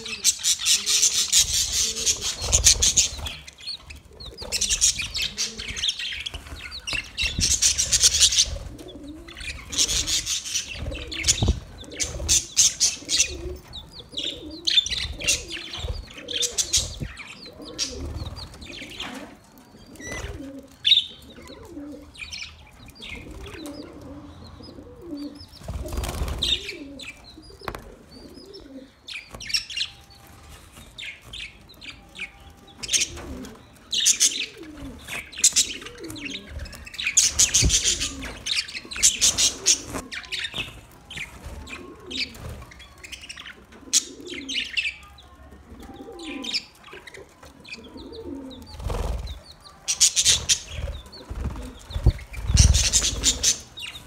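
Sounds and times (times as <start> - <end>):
budgerigars chirping and chattering: 0.0 - 54.0
wings fluttering: 0.7 - 13.7, 25.5 - 26.8, 32.8 - 43.1, 48.5 - 54.0.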